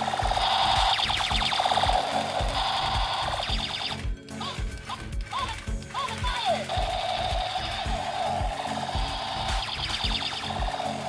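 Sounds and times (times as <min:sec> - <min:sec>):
pulsing electronic warble: 0:00.0 - 0:04.1, 0:06.7 - 0:11.0
thumping beat: 0:00.0 - 0:11.0.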